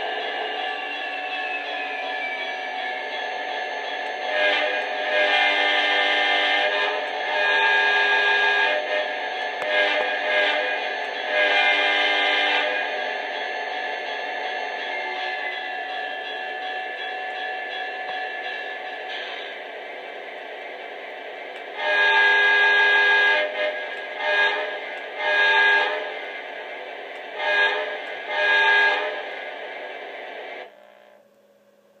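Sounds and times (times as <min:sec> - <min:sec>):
model locomotive diesel engine sound: 0:00.0 - 0:32.0
locomotive horn blasts: 0:04.3 - 0:13.0, 0:21.7 - 0:26.2, 0:27.3 - 0:29.3.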